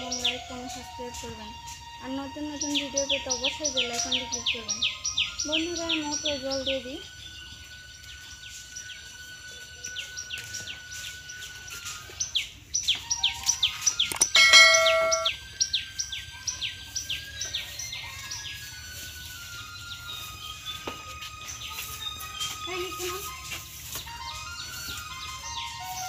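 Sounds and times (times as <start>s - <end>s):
birds chirping: 0.0s - 26.0s
short bell-like chime: 14.3s - 15.3s.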